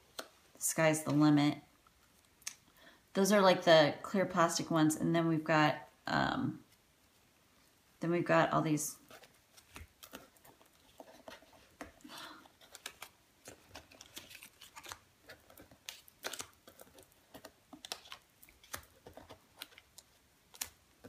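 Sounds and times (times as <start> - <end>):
paper and plastic rustling: 9.0 - 21.0.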